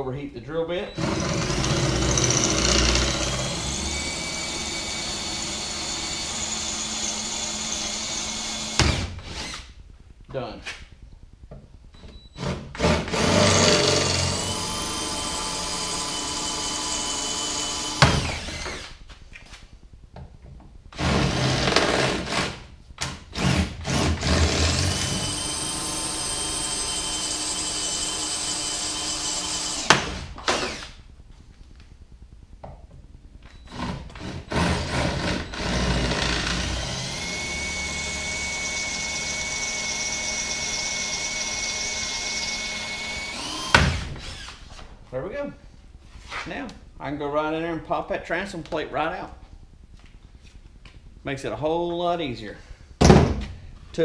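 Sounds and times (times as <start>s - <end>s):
cordless drill whining: 0.9s - 9.7s, 12.4s - 19.0s, 23.3s - 31.0s, 33.5s - 44.8s.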